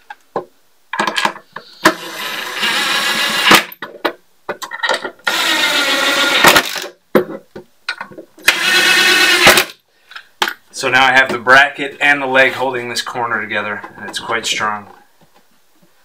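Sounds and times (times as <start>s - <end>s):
cordless drill driving screws: 1.8s - 3.7s, 5.2s - 6.9s, 8.4s - 9.8s.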